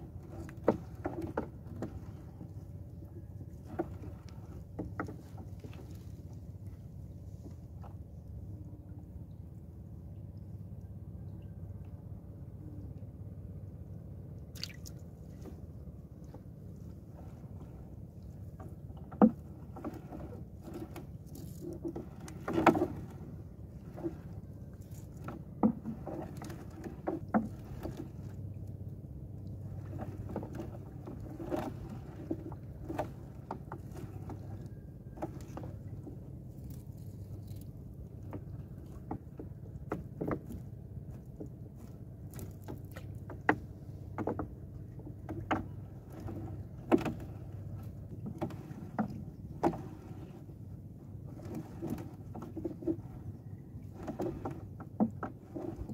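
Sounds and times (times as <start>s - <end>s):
knocks against hull: 42.3s - 50.4s, 53.8s - 55.9s.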